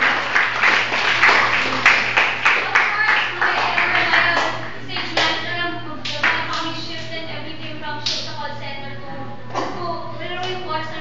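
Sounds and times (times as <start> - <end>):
group clapping in rhythm: 0.0 - 6.7, 8.0 - 8.3.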